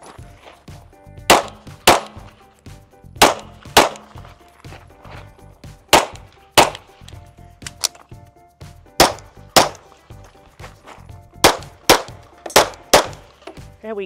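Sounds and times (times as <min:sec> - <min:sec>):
pistol shots: 0:01.3 - 0:02.4, 0:03.2 - 0:04.2, 0:05.9 - 0:07.0, 0:09.0 - 0:09.9, 0:11.4 - 0:13.4.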